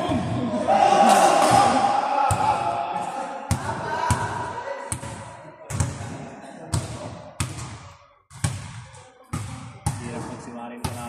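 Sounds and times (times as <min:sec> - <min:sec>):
basketball bouncing on gym floor: 0:06.7 - 0:11.0.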